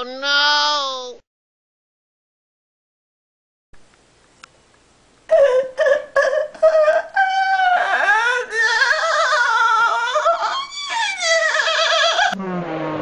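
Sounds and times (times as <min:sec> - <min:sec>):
long wavering cries: 0:05.3 - 0:12.4
high-pitched voice laughing: 0:08.4 - 0:12.4.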